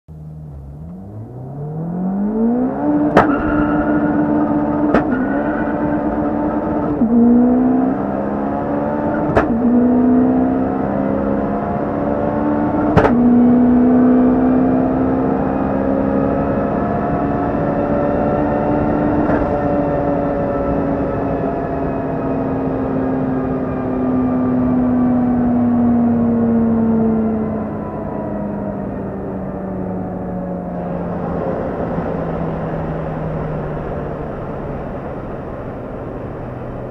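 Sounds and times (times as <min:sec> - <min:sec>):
car engine accelerating: 0:00.0 - 0:36.9
gear change crack: 0:03.0 - 0:07.1, 0:09.1 - 0:09.7.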